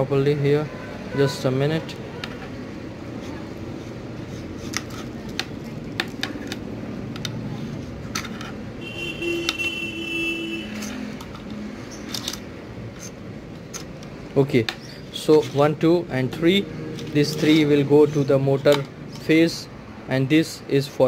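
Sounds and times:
plastic connectors clicking: 0:04.6 - 0:07.4, 0:10.7 - 0:15.6.

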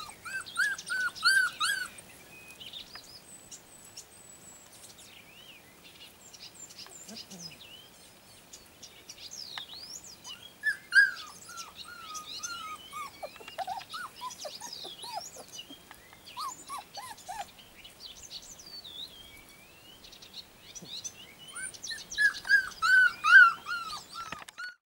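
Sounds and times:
puppies yipping: 0:00.0 - 0:02.0, 0:10.3 - 0:17.6, 0:21.5 - 0:24.8
birds chirping: 0:00.0 - 0:24.8.

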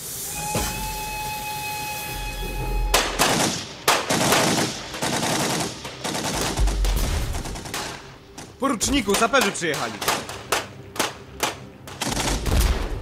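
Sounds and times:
train steam whistle: 0:00.0 - 0:03.2
rapid machine-gun and rifle fire: 0:03.2 - 0:10.6.

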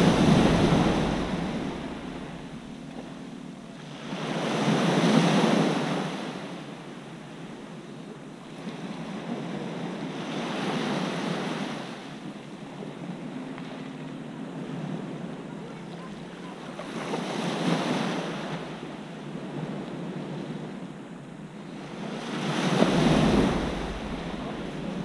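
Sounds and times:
waves washing on pebble beach: 0:00.0 - 0:02.6, 0:21.8 - 0:25.0.

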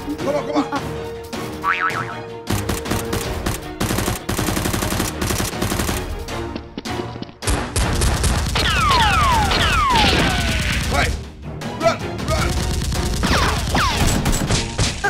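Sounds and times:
action music: 0:00.0 - 0:15.0
machine-gun gunfire effects: 0:02.5 - 0:06.1.

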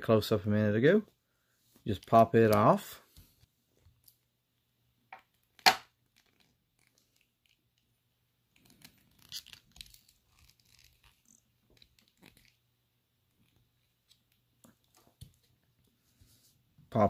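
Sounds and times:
plastic snap: 0:05.6 - 0:05.9.

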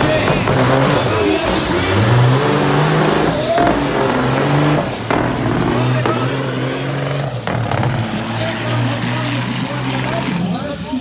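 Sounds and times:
truck engines at full throttle: 0:00.0 - 0:11.0.

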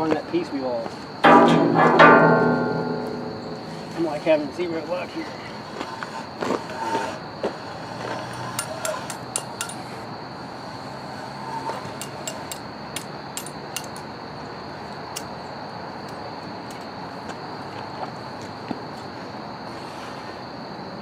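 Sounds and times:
high-pitched hum: 0:01.3 - 0:04.2.

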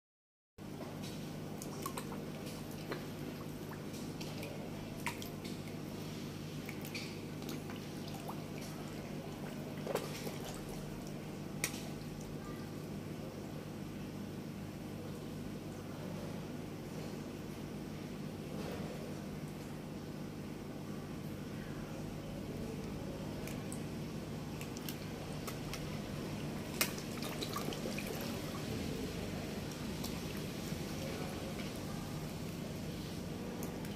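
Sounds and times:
low background noise: 0:00.6 - 0:33.9
steady low hum: 0:00.6 - 0:33.9
water dripping: 0:01.5 - 0:05.9, 0:22.8 - 0:31.8
fish splashing at water surface: 0:01.5 - 0:12.3, 0:23.1 - 0:31.9.

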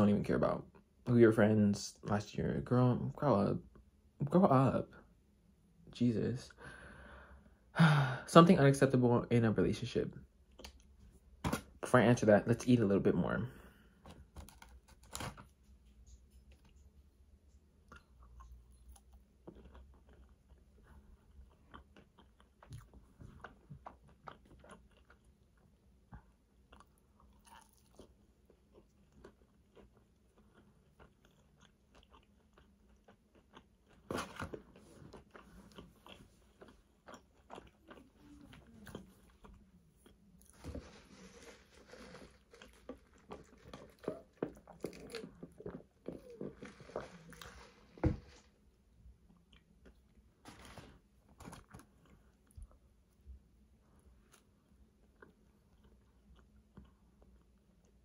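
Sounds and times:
person chewing and crunching food: 0:10.3 - 0:11.6, 0:13.4 - 0:58.0.

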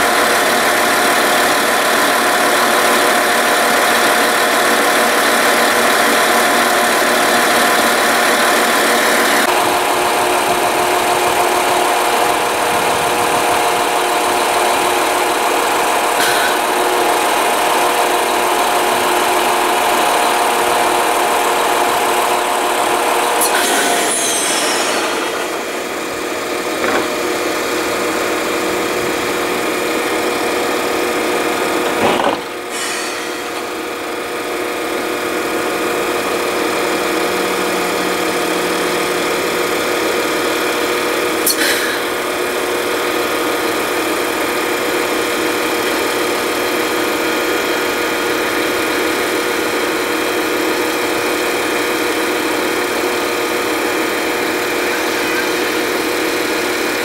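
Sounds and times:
train equipment humming: 0:00.0 - 0:57.0
short knocks: 0:26.8 - 0:27.2.

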